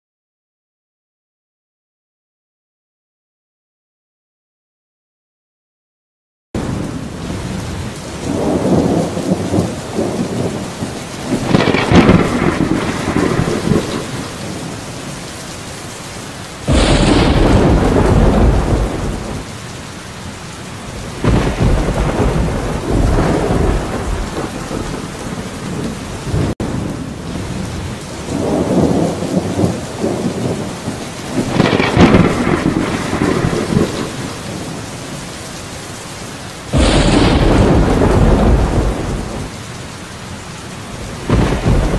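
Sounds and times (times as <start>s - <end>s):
rolling thunder: 6.6s - 14.9s, 16.6s - 19.5s, 20.9s - 34.8s, 36.7s - 39.6s, 41.0s - 41.9s
heavy rain: 6.6s - 41.9s
loud thunder clap: 11.3s - 14.4s, 16.7s - 19.5s, 21.2s - 26.6s, 31.3s - 34.5s, 36.7s - 39.5s, 41.2s - 41.9s.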